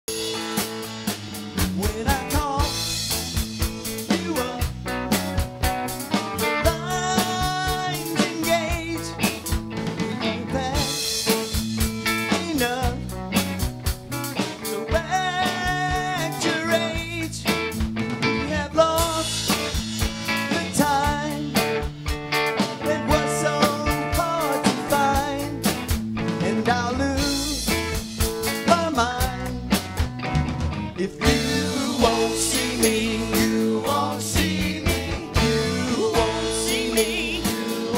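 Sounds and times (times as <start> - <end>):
bass guitar: 0.0 - 37.9
drum kit: 0.0 - 37.9
electric guitars: 0.1 - 37.9
person singing: 1.8 - 2.8, 4.0 - 4.8, 6.6 - 9.3, 14.7 - 17.4, 20.4 - 21.5, 22.8 - 25.6, 31.0 - 37.9.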